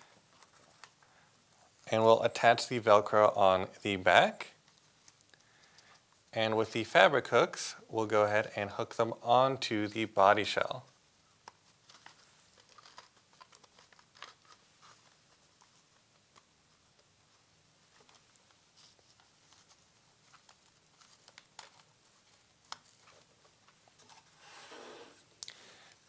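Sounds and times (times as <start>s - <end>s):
faint clicks and rustles: 0.0s - 2.0s, 4.6s - 6.7s, 10.8s - 24.4s.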